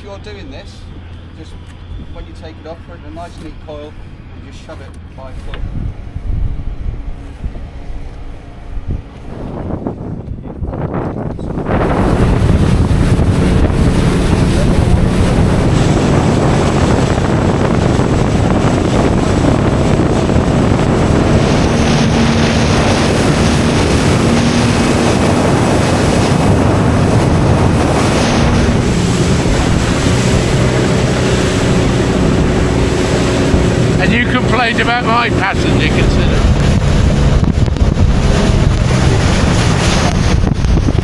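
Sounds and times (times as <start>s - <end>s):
boat engine running: 0.0s - 41.0s
wind buffeting microphone: 0.0s - 41.0s
water rushing: 11.4s - 41.0s.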